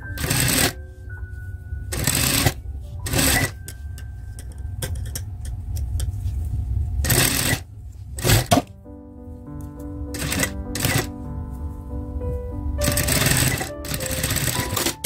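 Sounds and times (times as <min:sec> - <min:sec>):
sewing machine stitching: 0:00.2 - 0:00.8, 0:02.0 - 0:03.5, 0:07.0 - 0:07.6, 0:08.2 - 0:08.6, 0:10.2 - 0:11.1, 0:12.8 - 0:15.0.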